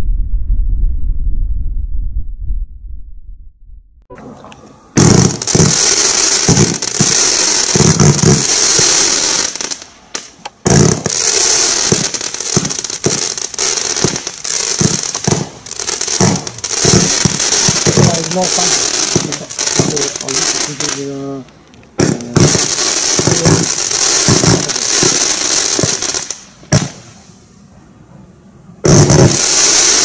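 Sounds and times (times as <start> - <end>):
firework launch thumps: 4.1 - 7.2, 10.2 - 11.1, 14.0 - 15.6, 26.6 - 27.2, 28.8 - 29.4
firework hiss: 4.3 - 27.7, 28.8 - 30.0.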